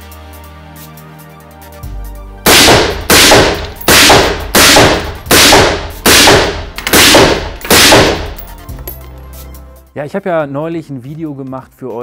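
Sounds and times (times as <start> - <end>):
suppressed rifle shots: 2.5 - 8.4.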